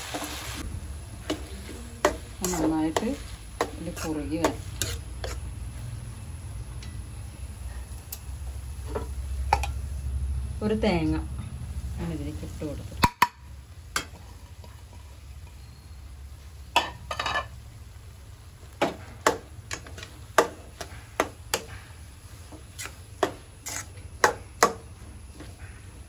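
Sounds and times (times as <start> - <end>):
metal spoon scraping metal pan: 1.3 - 5.5, 22.7 - 24.0.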